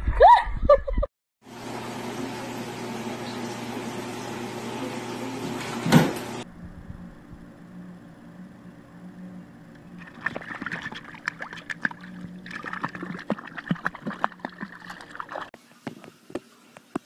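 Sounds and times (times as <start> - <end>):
steady low hum: 6.4 - 15.5
cat splashing in water: 10.0 - 15.5.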